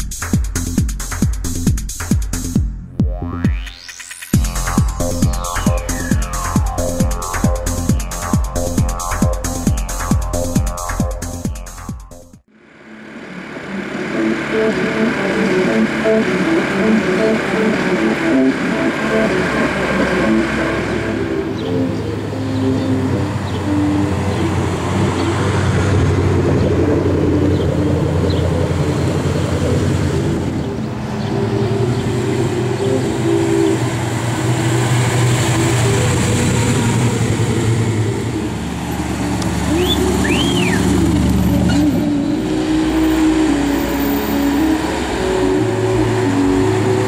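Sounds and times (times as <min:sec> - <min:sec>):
cars driving slowly past: 0:12.7 - 0:47.0.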